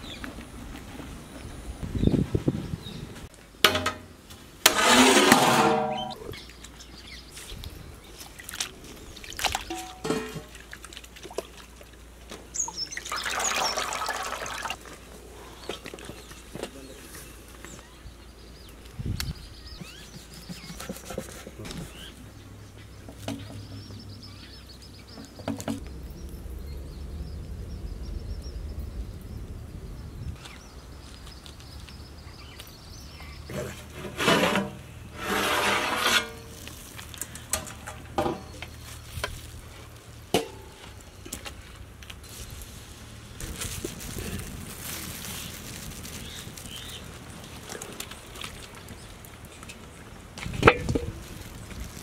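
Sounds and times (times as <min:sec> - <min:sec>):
metal skimmer scraping a pot: 0:04.7 - 0:06.3, 0:09.7 - 0:10.6, 0:33.5 - 0:36.8
pot of potatoes boiling: 0:12.0 - 0:14.9.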